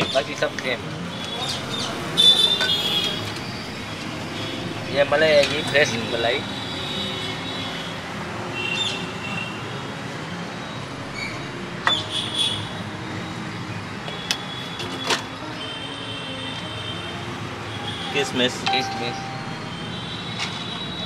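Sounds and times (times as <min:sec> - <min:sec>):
street traffic noise: 0:00.0 - 0:21.0
short high-pitched tones: 0:18.7 - 0:20.2.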